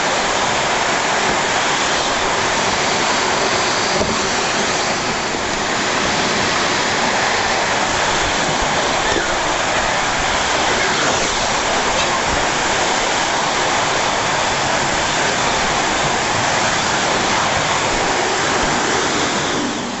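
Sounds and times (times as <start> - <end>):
vacuum cleaner running: 0.0 - 20.0.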